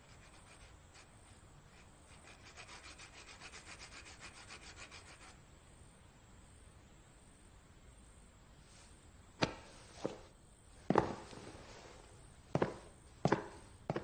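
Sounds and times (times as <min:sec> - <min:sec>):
pencil scratching on paper: 0:00.0 - 0:05.4.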